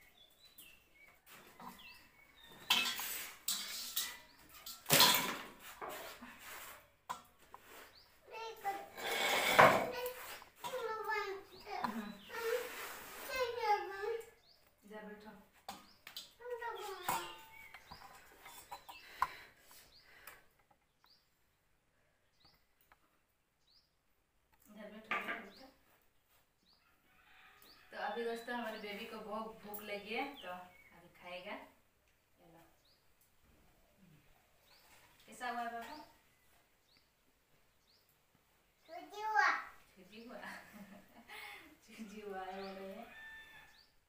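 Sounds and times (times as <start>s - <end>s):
small bird chirping: 0.0s - 4.9s, 15.6s - 21.6s, 22.2s - 31.4s, 32.1s - 39.1s
metal pots and utensils clattering: 1.5s - 6.2s, 15.7s - 19.5s.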